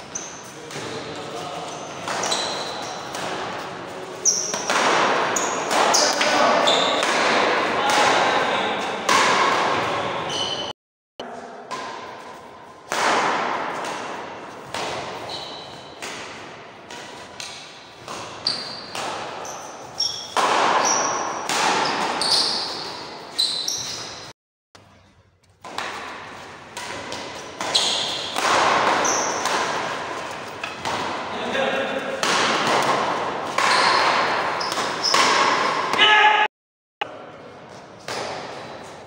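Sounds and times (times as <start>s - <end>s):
shoes squeaking on court: 0.0s - 7.1s, 9.8s - 10.7s, 14.5s - 16.0s, 17.1s - 24.3s, 24.9s - 30.8s, 33.4s - 35.8s
rackets striking shuttlecock: 24.8s - 36.0s.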